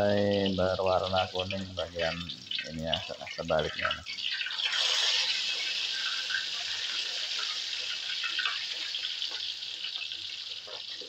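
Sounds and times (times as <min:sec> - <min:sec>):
hot oil sizzling: 0:00.0 - 0:11.0.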